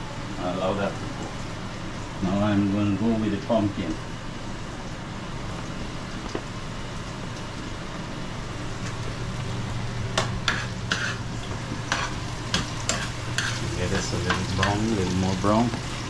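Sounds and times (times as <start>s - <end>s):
vegetables sizzling in oil: 0.3s - 16.0s
utensils clacking on cookware: 11.9s - 15.0s.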